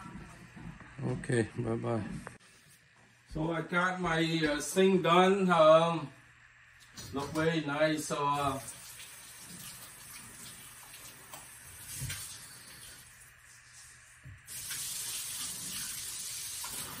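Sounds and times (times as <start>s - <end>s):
faucet water running into sink: 8.4s - 13.6s, 14.3s - 17.0s.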